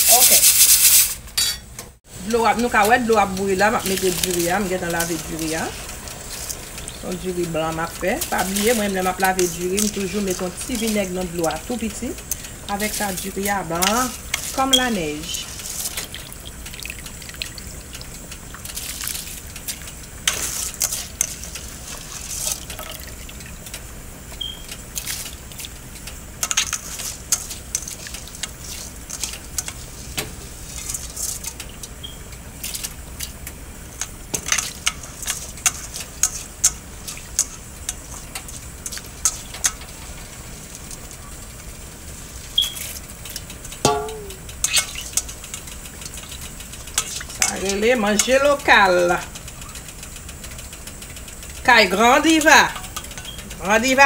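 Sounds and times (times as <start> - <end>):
rice clicking on metal bowl: 2.6 - 41.2, 42.6 - 54.0
water splashing: 12.3 - 23.7.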